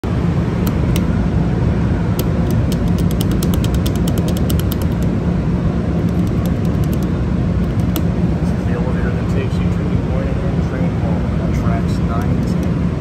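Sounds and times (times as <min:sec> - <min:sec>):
low mechanical rumble: 0:00.0 - 0:13.0
rapid light clicks: 0:02.2 - 0:05.1, 0:06.0 - 0:08.1.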